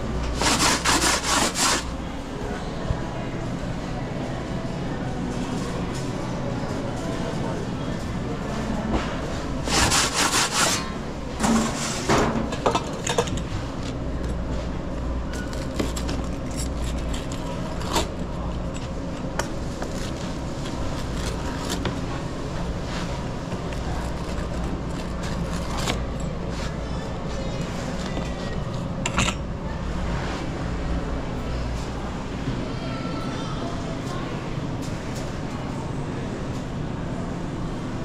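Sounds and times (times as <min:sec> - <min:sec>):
steady low hum: 0:00.0 - 0:38.0
kitchen tools scraping: 0:00.2 - 0:01.9, 0:09.6 - 0:13.5.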